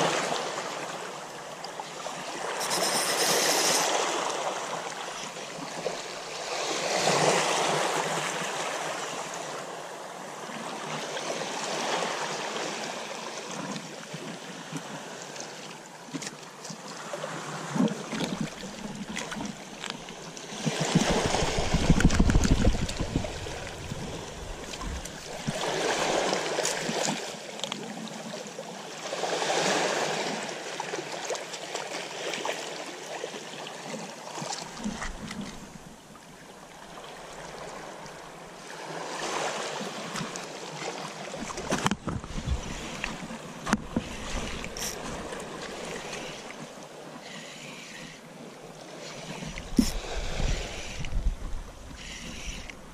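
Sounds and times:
seawater sloshing and splashing: 0:16.1 - 0:28.1.

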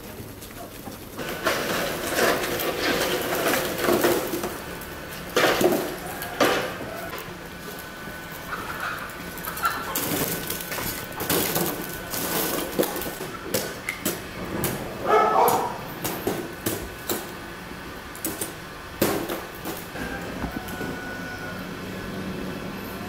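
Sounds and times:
charcoal and metal clinking: 0:00.0 - 0:17.4.

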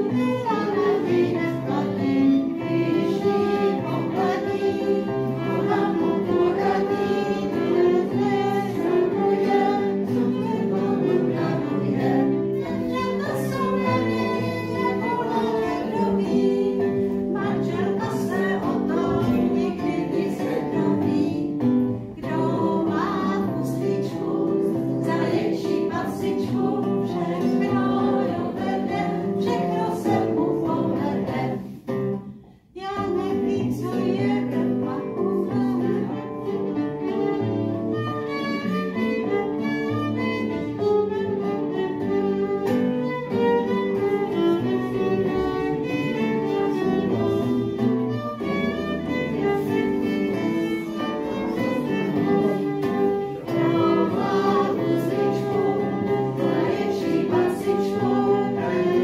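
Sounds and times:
acoustic guitar: 0:00.0 - 0:59.0
violin: 0:00.0 - 0:59.0.

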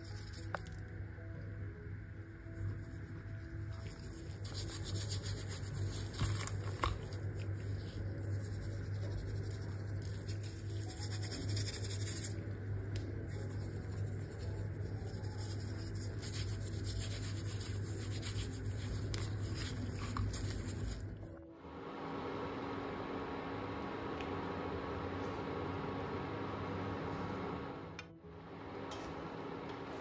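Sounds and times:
low hum: 0:00.0 - 0:30.0
hands rubbing flour onto fish: 0:03.6 - 0:12.4, 0:13.2 - 0:21.2.

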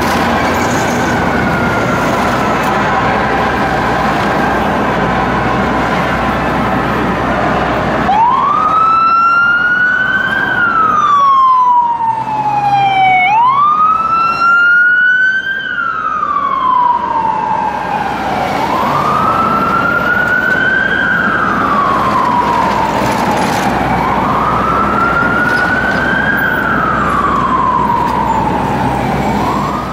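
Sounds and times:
siren wailing: 0:00.0 - 0:29.9
traffic noise: 0:00.0 - 0:29.9.

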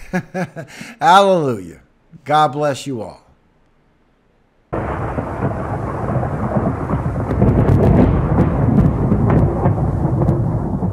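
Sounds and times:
steady rain: 0:04.7 - 0:10.9
thunder crackles: 0:04.8 - 0:10.9
thunder rumbling: 0:04.8 - 0:10.9.

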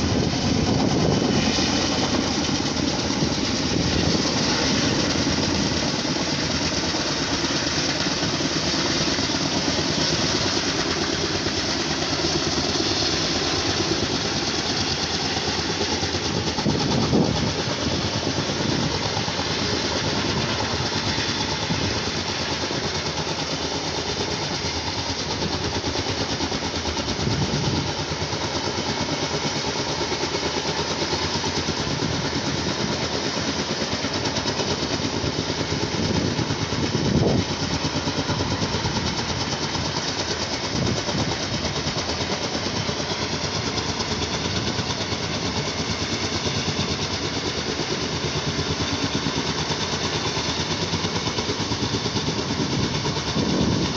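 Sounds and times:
pulsing engine drone: 0:00.0 - 0:53.9.

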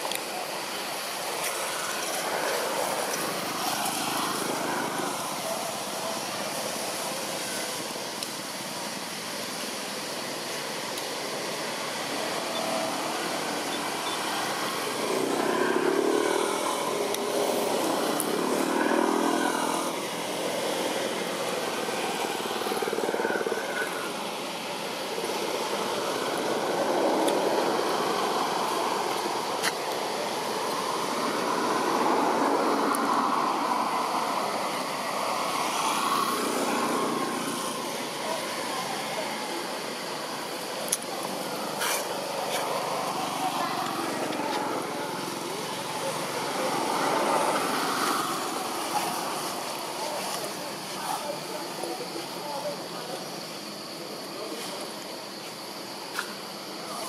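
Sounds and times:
vehicles passing: 0:00.0 - 0:53.4
motor traffic drone: 0:00.0 - 0:57.0.

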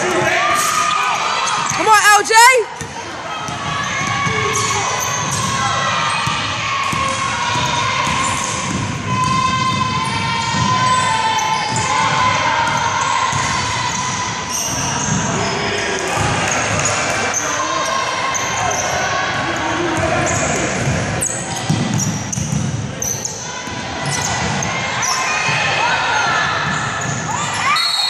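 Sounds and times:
sneakers squeaking: 0:00.0 - 0:28.0
basketball bouncing on hardwood: 0:06.2 - 0:10.8.

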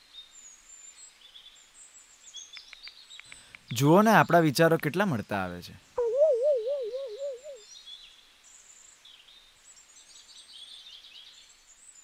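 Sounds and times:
comic warbling tone: 0:06.0 - 0:07.6
faint bird chirps: 0:06.0 - 0:07.6.

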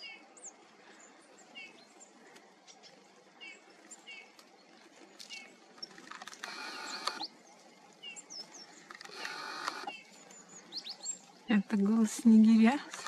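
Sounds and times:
bird buzzy calls: 0:05.2 - 0:07.4, 0:08.0 - 0:11.3.

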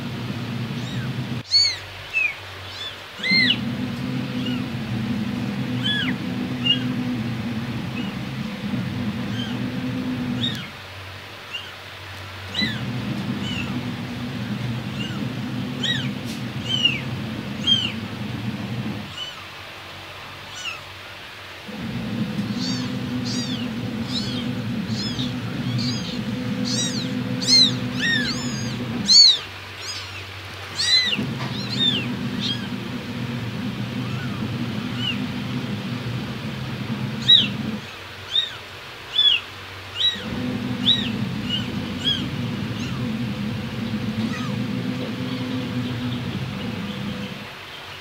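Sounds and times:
steady low hum: 0:00.0 - 0:01.5, 0:03.1 - 0:19.4, 0:21.6 - 0:38.1, 0:40.2 - 0:47.6
kittens mewing: 0:00.8 - 0:03.6, 0:09.2 - 0:09.7, 0:12.5 - 0:18.0, 0:22.1 - 0:32.7, 0:33.8 - 0:35.2, 0:40.0 - 0:44.7.

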